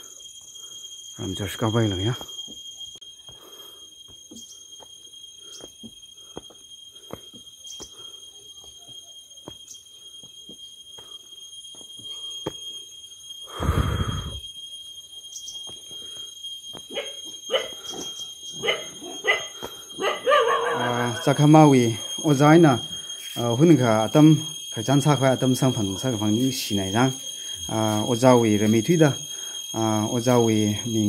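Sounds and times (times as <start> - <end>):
footsteps on concrete steps: 5.6 - 8.0, 8.6 - 10.6
high-pitched whine: 7.2 - 16.2
dog barking: 16.9 - 17.8, 18.6 - 21.2.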